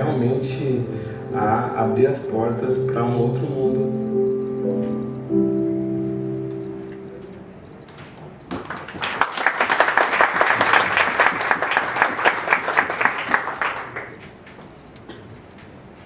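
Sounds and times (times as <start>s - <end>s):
audience applauding: 8.5s - 14.5s.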